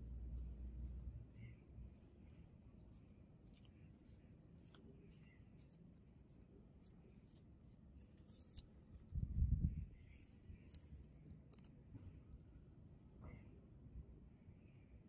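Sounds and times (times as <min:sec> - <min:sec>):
small metal clicks and ticks: 0:10.1 - 0:11.7.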